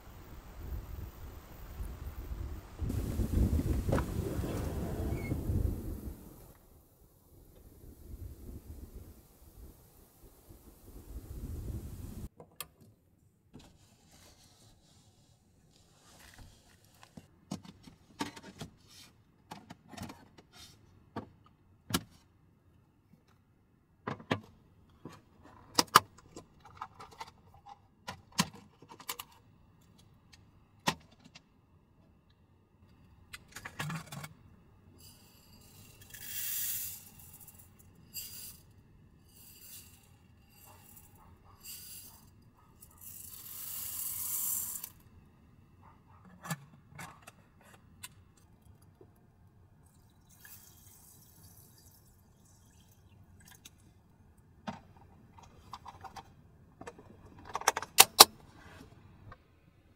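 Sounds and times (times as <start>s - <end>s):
dry rice pouring: 35.2s - 38.6s, 43.0s - 44.9s
water trickling onto rice: 49.8s - 53.6s.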